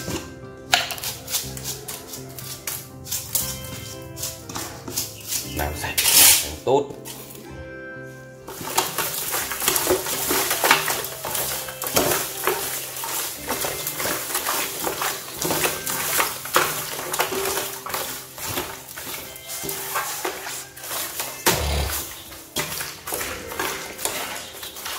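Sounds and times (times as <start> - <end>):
hands rubbing wet meat with salt: 0.7 - 7.4, 8.5 - 24.9.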